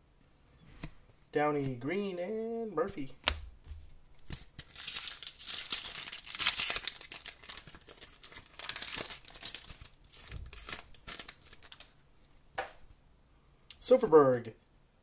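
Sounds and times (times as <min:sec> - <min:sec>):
wrapper being torn and crinkled: 0:04.2 - 0:12.0.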